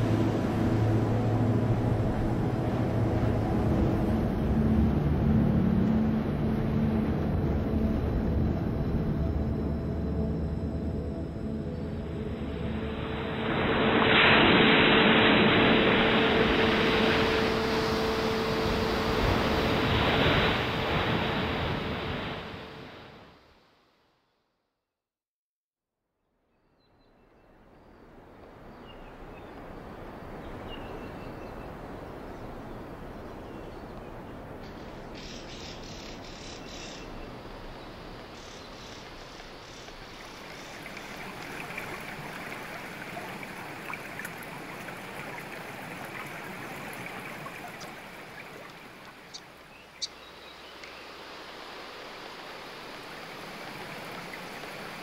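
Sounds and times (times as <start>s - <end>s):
running water rushing: 0.0s - 10.9s, 11.5s - 23.2s, 28.2s - 55.0s
faint bird chirps: 34.6s - 40.8s, 49.2s - 51.1s.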